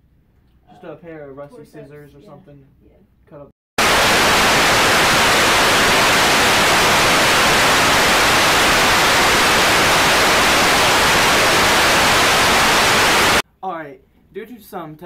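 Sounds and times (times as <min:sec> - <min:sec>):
television static hiss: 0:03.8 - 0:13.4.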